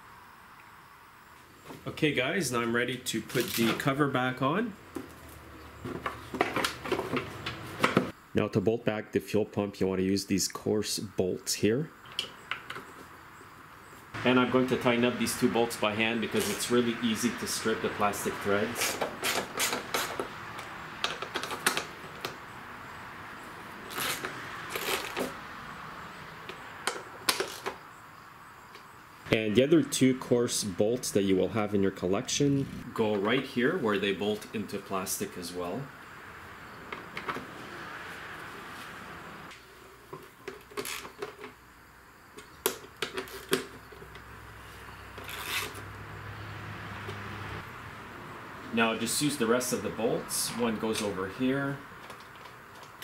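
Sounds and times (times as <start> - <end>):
socket wrench clicking and scraping: 18.8 - 22.4.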